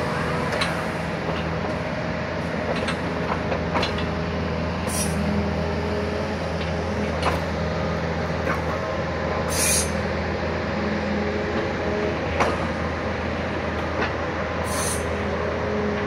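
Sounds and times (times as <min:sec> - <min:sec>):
diesel engine running: 0:00.0 - 0:16.0
hydraulic whine: 0:02.4 - 0:16.0
short high hisses: 0:04.9 - 0:05.2, 0:09.5 - 0:10.0, 0:14.6 - 0:15.1.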